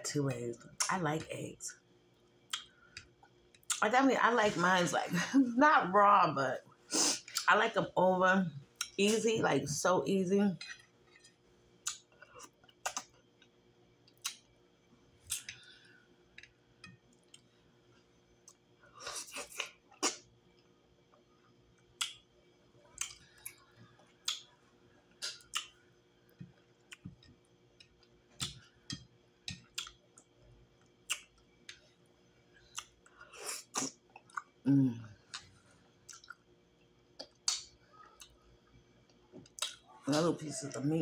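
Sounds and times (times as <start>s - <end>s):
wet chewing and lip smacking: 22.9s - 24.5s, 29.6s - 30.3s, 35.3s - 36.5s, 37.2s - 38.4s, 39.4s - 40.0s.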